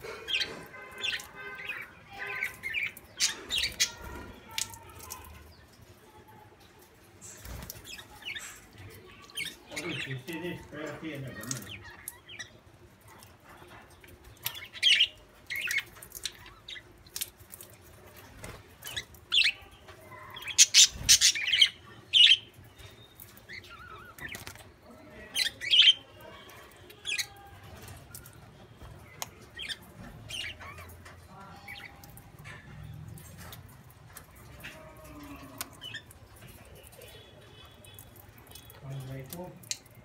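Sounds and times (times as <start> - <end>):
budgerigars chirping and squawking: 0.0 - 4.6, 7.4 - 12.6, 13.7 - 16.9, 18.4 - 26.1, 27.0 - 33.6.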